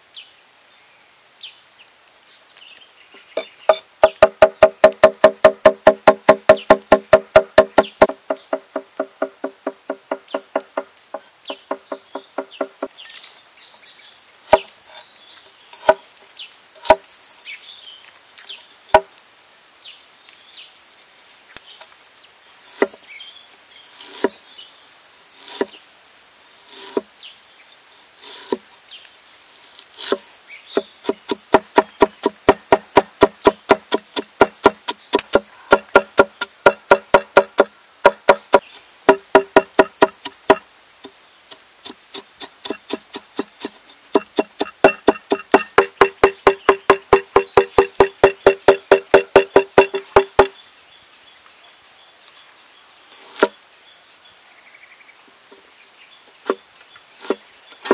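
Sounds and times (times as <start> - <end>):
cleaver chopping on wooden board: 3.4 - 12.9, 14.5 - 14.7, 16.8 - 17.0, 30.0 - 40.6, 41.9 - 50.5.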